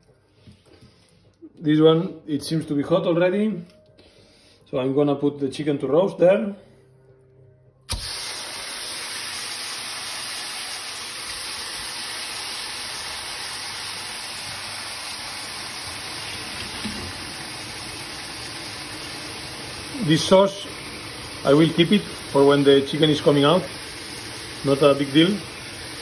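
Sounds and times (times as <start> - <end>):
chicken sizzling in a hot pan: 7.9 - 26.0.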